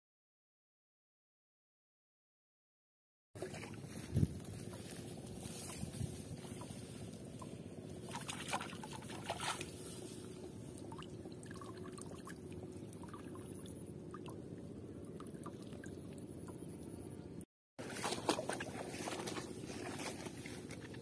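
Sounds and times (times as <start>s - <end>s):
water trickling and splashing: 3.4s - 16.9s, 17.8s - 21.0s.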